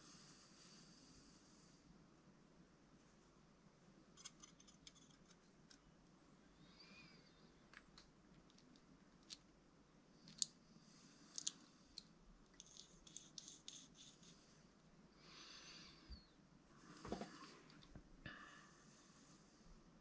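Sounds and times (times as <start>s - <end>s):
small metal parts clicking: 10.2s - 10.5s, 11.3s - 14.0s.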